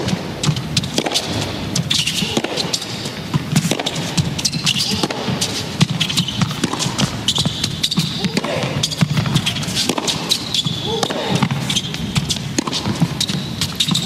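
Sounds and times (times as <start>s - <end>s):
rackets hitting tennis ball: 0.0s - 14.0s
shoes squeaking on court: 0.0s - 14.0s
crowd murmuring: 8.2s - 8.9s.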